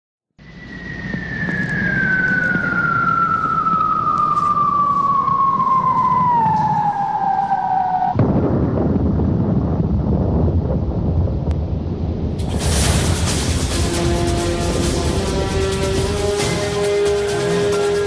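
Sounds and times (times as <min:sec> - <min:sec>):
falling high whistle: 0:00.4 - 0:08.2
burst of rumbling noise: 0:00.4 - 0:16.8.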